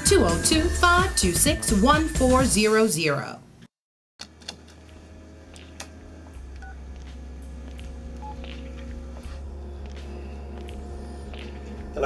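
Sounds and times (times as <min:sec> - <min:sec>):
steady low hum: 0:04.4 - 0:12.0
keypad beeps: 0:08.2 - 0:08.5.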